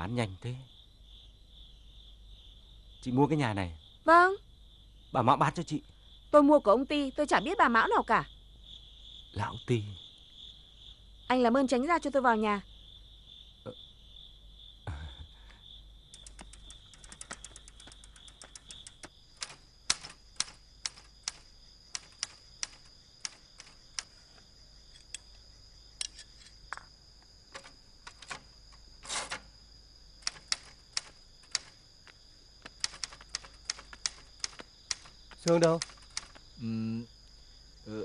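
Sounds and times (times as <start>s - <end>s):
crickets trilling: 0.0s - 38.0s
manual typewriter typing: 16.2s - 24.1s, 27.6s - 29.5s, 30.2s - 31.8s, 32.8s - 36.4s.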